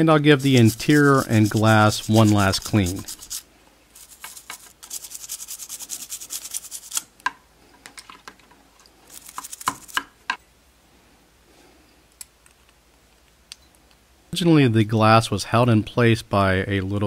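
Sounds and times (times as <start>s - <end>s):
brush scrubbing plastic: 0.0s - 7.0s, 9.1s - 10.0s.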